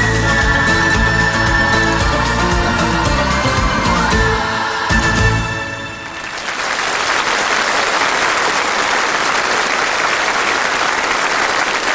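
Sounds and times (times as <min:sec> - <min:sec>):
audience applauding: 0:06.0 - 0:11.9.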